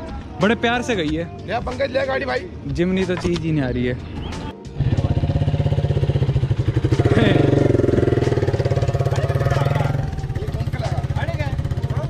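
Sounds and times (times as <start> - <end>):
motorcycle engine running: 4.7 - 12.0.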